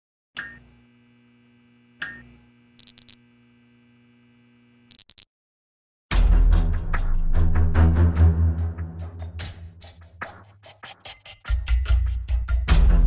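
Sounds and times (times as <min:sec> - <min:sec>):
steady electrical buzz: 0:00.6 - 0:05.2
loud music with a beat: 0:06.1 - 0:13.0.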